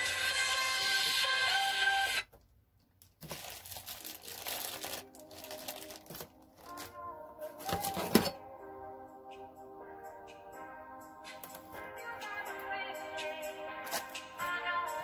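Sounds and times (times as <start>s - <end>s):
background music: 0.0s - 2.2s, 3.6s - 15.0s
plastic packaging crinkling: 3.0s - 7.0s.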